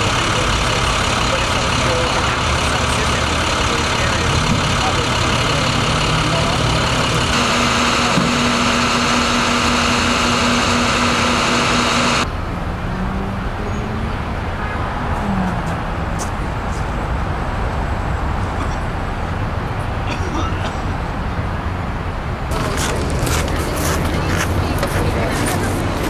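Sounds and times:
garbage truck running: 0.0s - 12.3s, 22.5s - 26.0s
street traffic rumble: 0.0s - 26.0s.

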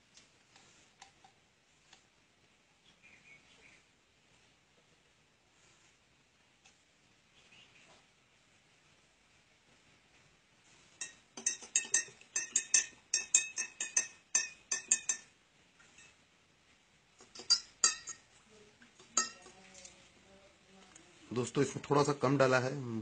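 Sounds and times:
spoon clinking against glass: 11.0s - 15.3s, 17.2s - 18.3s, 19.0s - 19.5s.

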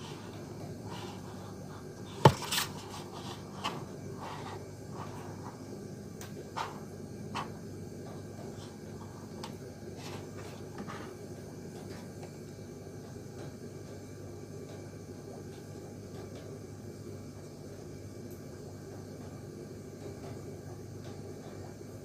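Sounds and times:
box tapping and rubbing: 2.1s - 3.8s
cardboard box knock: 2.2s - 2.6s.

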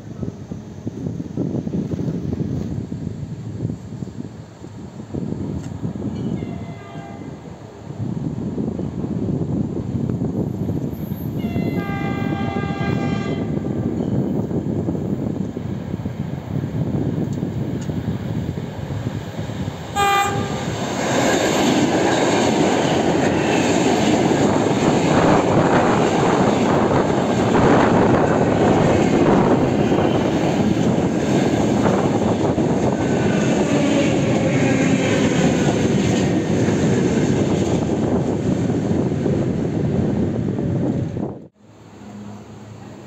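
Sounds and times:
train wheels rushing on rails: 0.0s - 43.0s
train horn blast: 6.3s - 7.4s, 11.4s - 13.7s, 19.9s - 20.8s.

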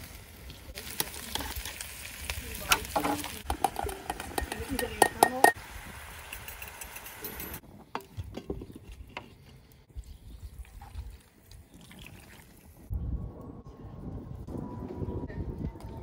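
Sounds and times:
sizzling: 0.0s - 8.2s.

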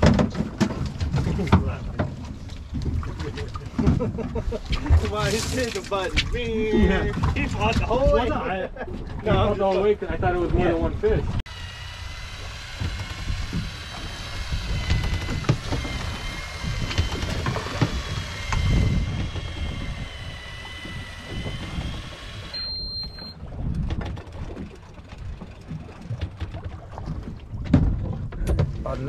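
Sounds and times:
wind and water rumble: 0.0s - 29.0s
fishing reel motor whining: 11.5s - 23.4s
short high beep: 22.5s - 23.4s.

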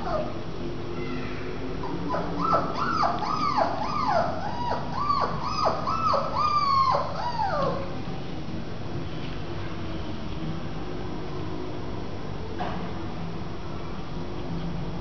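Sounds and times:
puppy whining: 0.0s - 0.4s, 1.8s - 8.0s.

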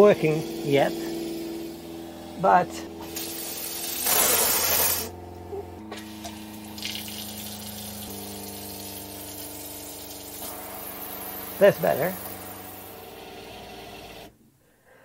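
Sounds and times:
water pump humming: 0.0s - 14.4s
water running into sink: 6.0s - 10.4s.

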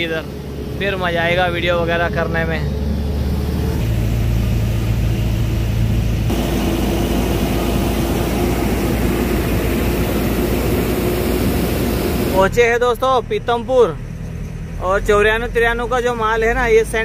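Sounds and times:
truck engine running: 0.0s - 12.7s
road and tyre noise: 0.0s - 17.0s.

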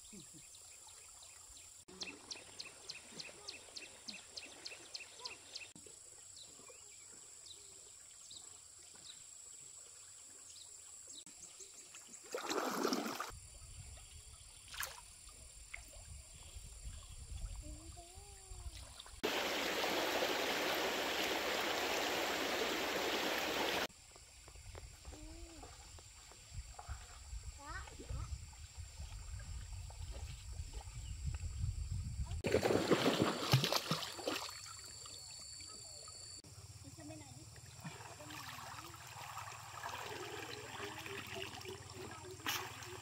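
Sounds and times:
flowing water rushing: 19.2s - 23.9s, 37.9s - 43.0s
splash-like rush: 19.2s - 23.9s, 32.4s - 34.6s.

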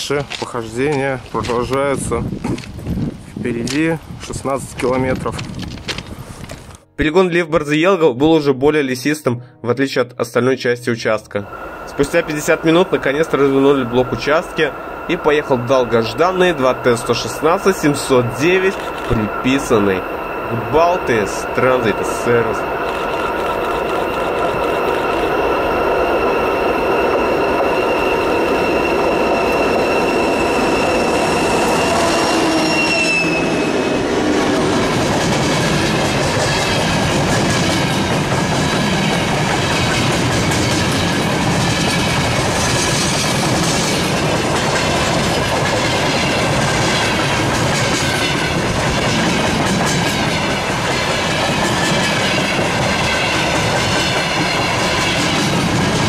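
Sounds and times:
train wheel clatter: 0.0s - 6.8s, 11.9s - 56.0s
high whine: 11.2s - 56.0s
diesel locomotive droning: 11.3s - 56.0s.

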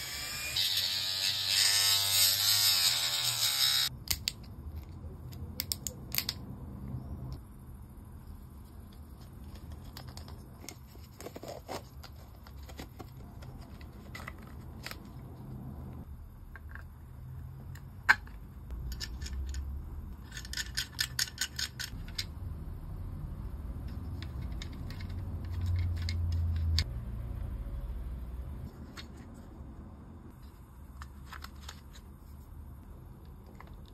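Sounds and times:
steady low hum: 3.8s - 33.9s
plastic parts clicking: 17.7s - 22.3s, 24.1s - 26.9s.

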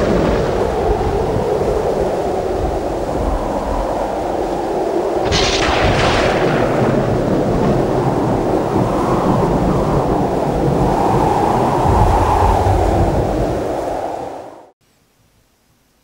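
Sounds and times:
rumbling thunder: 0.0s - 13.9s
heavy rain: 0.0s - 15.4s
thunderclap crack: 5.2s - 13.8s.

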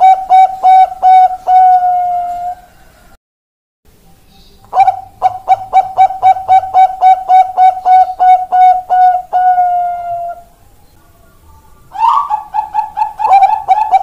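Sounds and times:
dove cooing: 0.0s - 2.7s, 4.7s - 10.5s, 11.9s - 14.0s.

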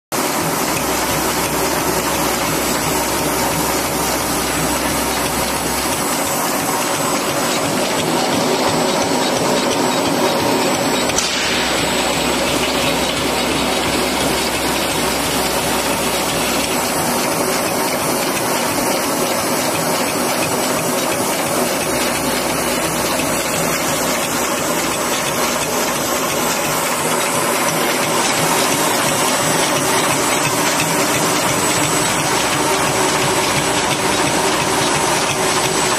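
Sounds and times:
packing machine rattling: 0.2s - 35.9s
low hum: 11.1s - 16.9s.

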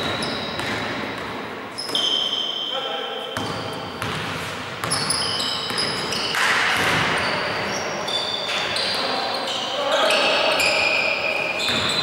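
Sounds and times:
basketball bouncing: 0.0s - 2.0s, 3.4s - 7.4s
sneakers squeaking on floor: 0.0s - 12.0s.

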